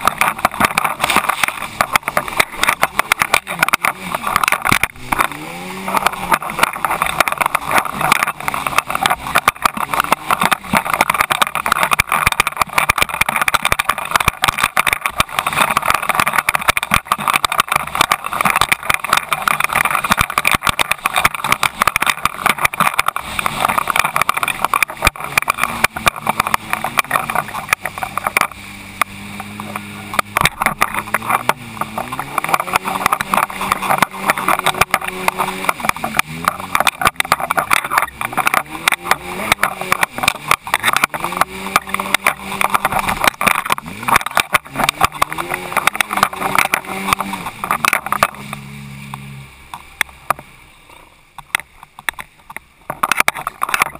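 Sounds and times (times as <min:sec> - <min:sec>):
water spray spattering: 0:00.0 - 0:50.7
jet ski engine: 0:00.0 - 0:53.9.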